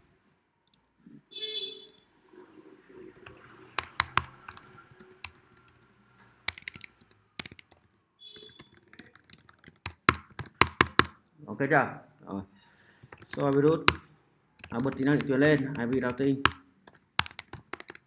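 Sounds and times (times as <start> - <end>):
typing on computer keyboard: 3.2 - 11.2, 13.0 - 18.0.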